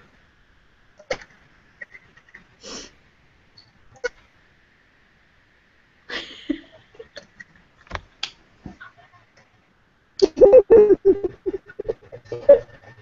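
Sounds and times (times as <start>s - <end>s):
woman laughing loudly: 6.1s - 7.2s, 10.2s - 12.8s.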